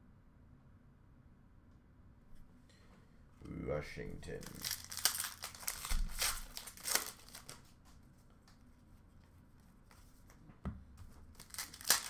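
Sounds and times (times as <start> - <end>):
faint handling sounds: 4.0 - 12.0
foil wrapper crackling: 4.3 - 7.7, 11.3 - 12.0.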